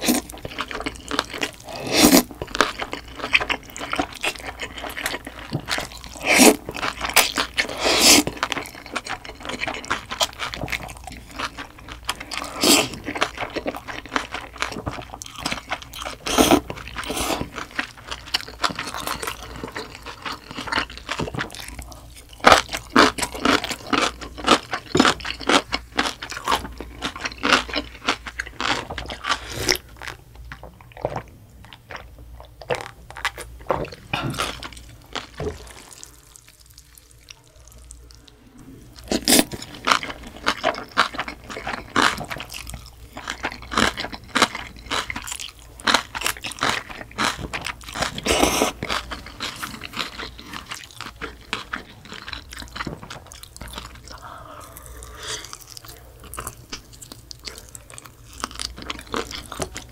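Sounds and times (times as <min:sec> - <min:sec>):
crunching and chewing: 0:00.0 - 0:59.9
person sipping liquid: 0:54.0 - 0:55.9.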